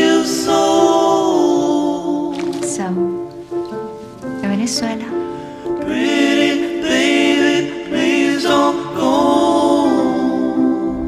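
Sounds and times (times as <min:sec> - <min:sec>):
voices singing in harmony: 0:00.0 - 0:02.8, 0:05.3 - 0:11.0.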